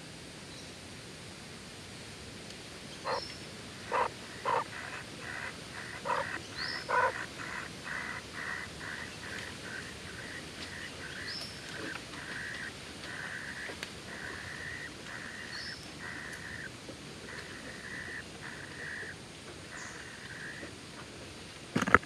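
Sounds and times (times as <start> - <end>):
nestlings begging calls: 3.0 - 16.7, 17.3 - 20.6.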